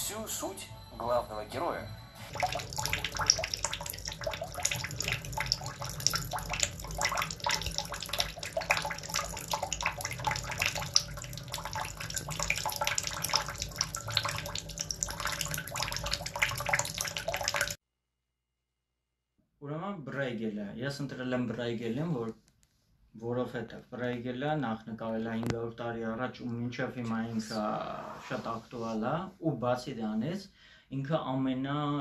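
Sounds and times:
water splashing in a tub: 2.2s - 17.8s.

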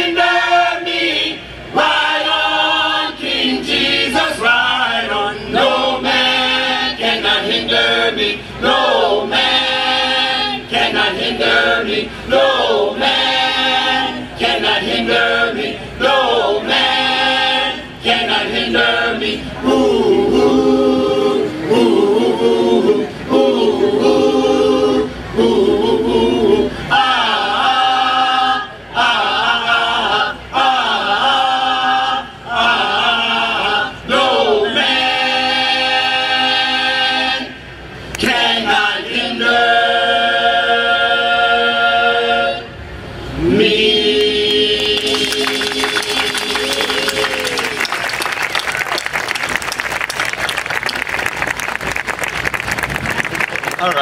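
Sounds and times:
choir singing a cappella: 0.0s - 47.9s.

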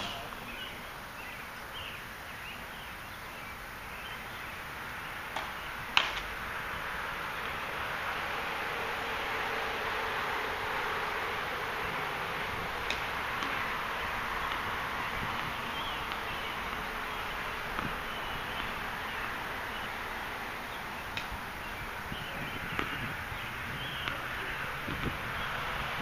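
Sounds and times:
steady outdoor hiss: 0.0s - 26.0s
tennis balls struck by rackets: 5.3s - 6.3s, 12.2s - 19.9s, 21.0s - 21.6s, 22.2s - 25.6s.

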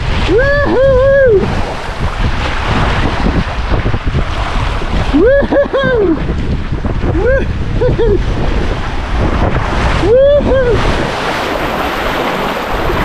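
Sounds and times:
water rushing down slide: 0.0s - 13.0s
wind buffeting microphone: 0.0s - 13.0s
person whooping: 0.2s - 1.5s, 5.1s - 6.2s, 7.1s - 8.2s, 9.9s - 10.9s.

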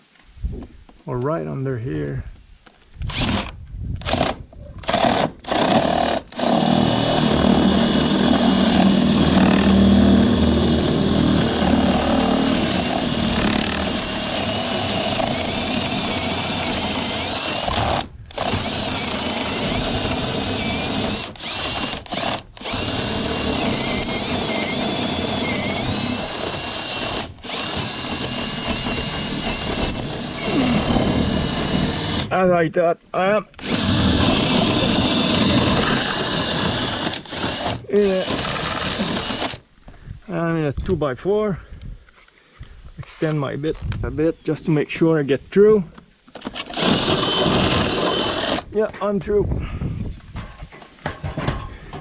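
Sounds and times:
cordless drill boring into wood: 3.0s - 32.3s, 33.6s - 39.6s, 46.4s - 48.7s.

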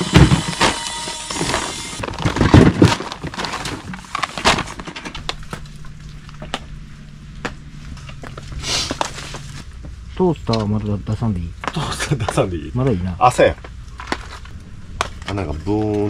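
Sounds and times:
plastic sheet crinkling: 0.7s - 6.6s
faint low hum: 2.0s - 16.0s.

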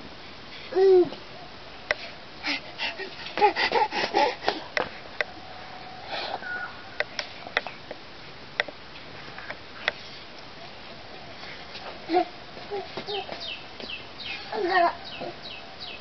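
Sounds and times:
toddler babbling: 0.7s - 1.2s, 12.1s - 13.4s, 14.4s - 15.4s.

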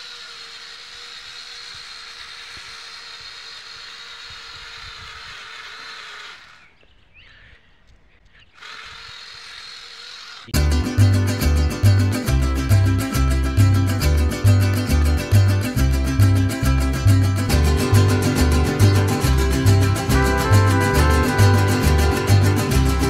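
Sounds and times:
small motors whining: 0.0s - 7.0s, 8.4s - 10.6s
loud guitar music: 10.6s - 23.0s.

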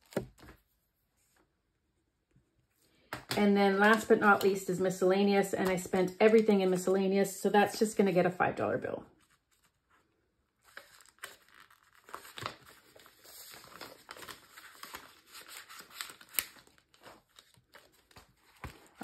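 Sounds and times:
paper money crinkling: 9.1s - 19.0s.

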